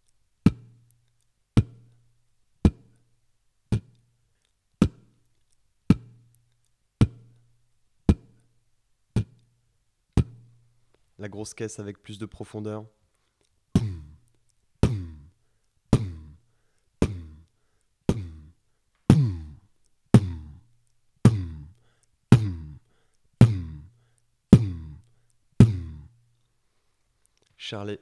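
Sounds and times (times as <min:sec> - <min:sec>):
beatboxed bass drum: 0:00.4 - 0:00.9, 0:01.6 - 0:02.0, 0:02.6 - 0:03.0, 0:03.7 - 0:04.0, 0:04.8 - 0:05.1, 0:05.9 - 0:06.3, 0:07.0 - 0:07.4, 0:08.1 - 0:08.4, 0:09.1 - 0:09.5, 0:10.2 - 0:10.6, 0:13.8 - 0:14.2, 0:14.8 - 0:16.4, 0:17.0 - 0:17.5, 0:18.1 - 0:20.6, 0:21.2 - 0:22.8, 0:23.4 - 0:26.2.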